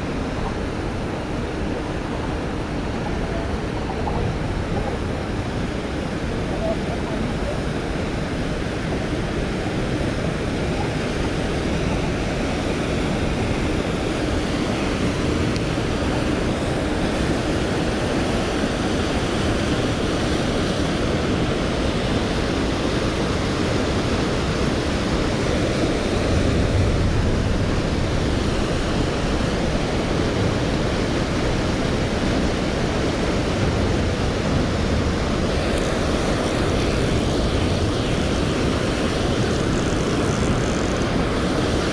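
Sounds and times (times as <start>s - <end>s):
river water rushing over dam: 0.0s - 41.9s.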